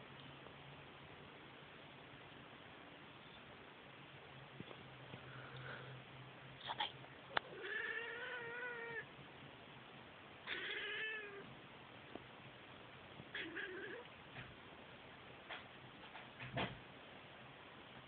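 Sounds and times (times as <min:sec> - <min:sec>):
cat meowing: 0:07.5 - 0:09.1, 0:10.5 - 0:11.5, 0:13.3 - 0:14.1.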